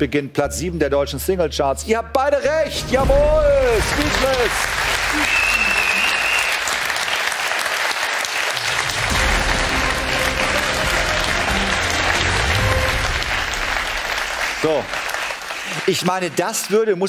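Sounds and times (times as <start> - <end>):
audience applauding: 3.6 - 17.0.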